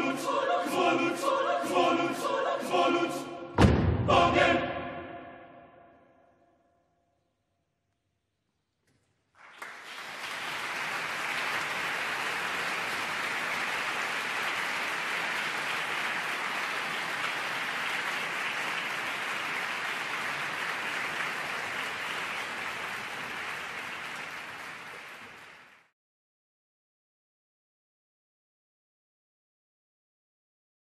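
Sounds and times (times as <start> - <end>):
choir chord: 0.0 - 5.9
audience applauding: 9.3 - 25.9.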